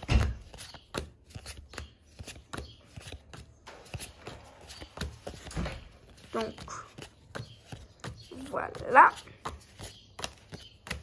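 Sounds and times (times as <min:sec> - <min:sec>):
cards flicking and sliding: 0:00.2 - 0:08.0.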